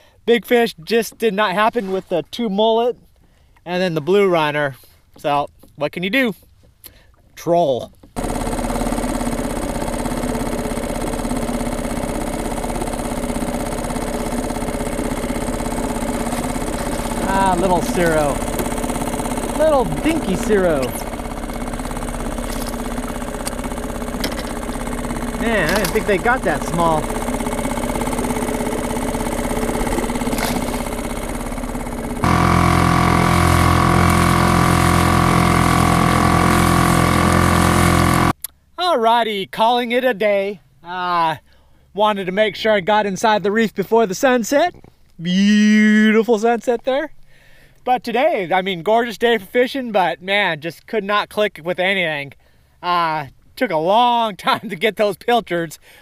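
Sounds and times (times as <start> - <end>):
outboard motor running: 7.9 - 38.4.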